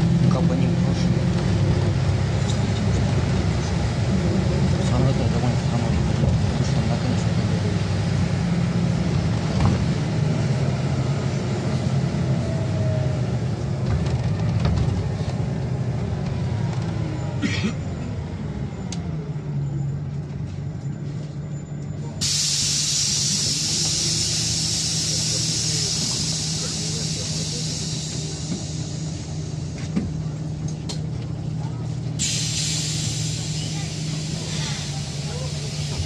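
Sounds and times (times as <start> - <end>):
bus engine drone: 0.0 - 36.0
drivetrain whine: 0.0 - 36.0
loud steady hiss: 22.2 - 29.6.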